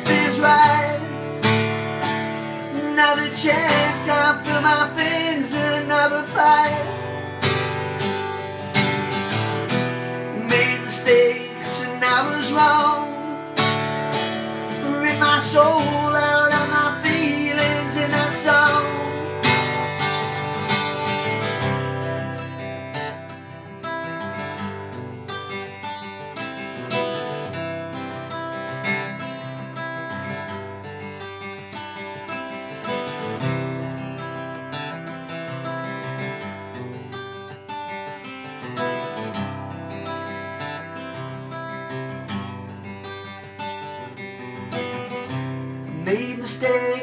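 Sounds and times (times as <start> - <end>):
acoustic guitar: 0.0 - 47.0.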